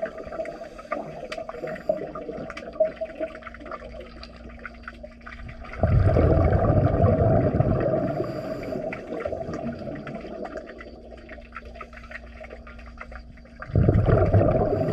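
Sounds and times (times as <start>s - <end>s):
regulator exhaust bubbles underwater: 0.0s - 14.9s.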